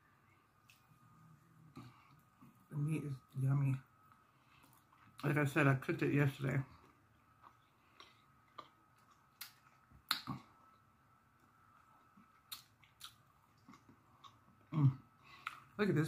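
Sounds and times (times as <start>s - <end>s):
person chewing with wet mouth clicks: 6.8s - 10.5s, 12.2s - 14.8s.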